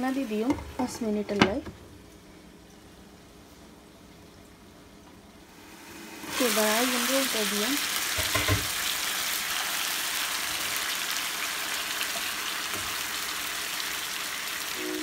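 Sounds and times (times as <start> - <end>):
chicken sizzling in a frying pan: 5.5 - 15.0.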